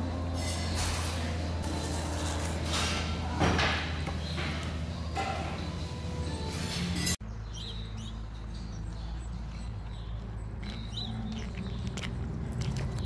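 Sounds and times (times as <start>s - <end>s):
small birds chirping: 7.2s - 13.0s.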